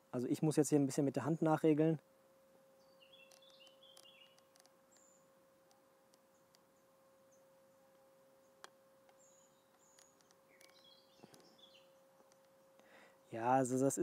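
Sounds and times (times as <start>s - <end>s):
faint steady tone: 0.0s - 14.0s
faint high bird chirps: 2.8s - 5.3s, 6.3s - 13.4s.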